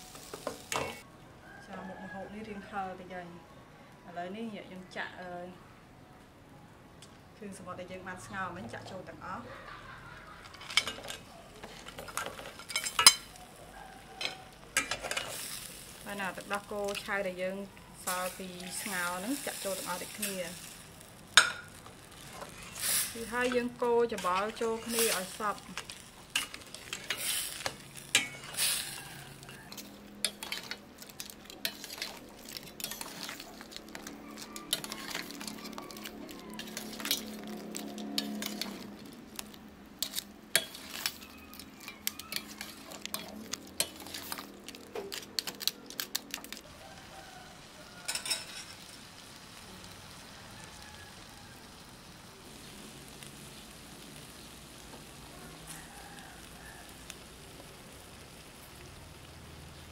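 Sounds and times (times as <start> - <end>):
sauce sizzling: 0.0 - 1.0, 9.7 - 59.9
spatula scraping a metal pot: 22.3 - 39.0, 40.0 - 44.5.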